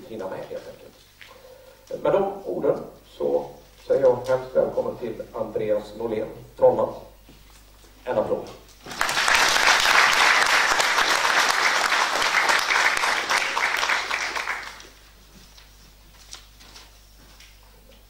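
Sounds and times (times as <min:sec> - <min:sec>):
audience applauding: 0:08.8 - 0:15.0.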